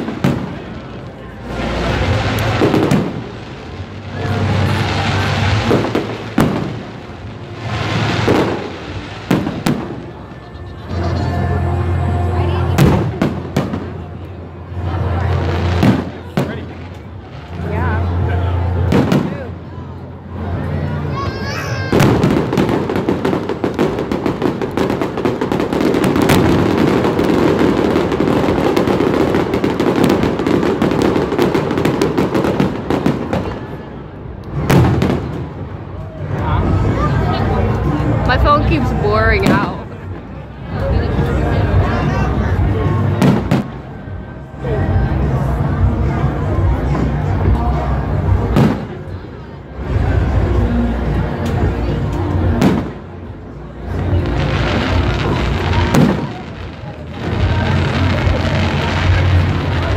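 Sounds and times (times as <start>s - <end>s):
rushing noise: 0.0s - 18.9s
fireworks bangs and crackles: 0.0s - 59.9s.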